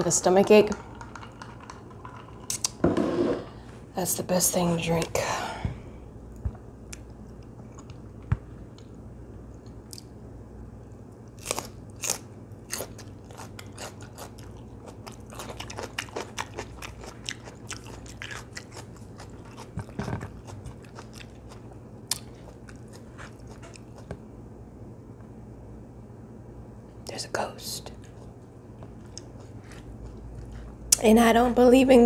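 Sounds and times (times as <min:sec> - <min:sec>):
crunchy cucumber chewing: 0:11.3 - 0:24.2, 0:28.0 - 0:31.0.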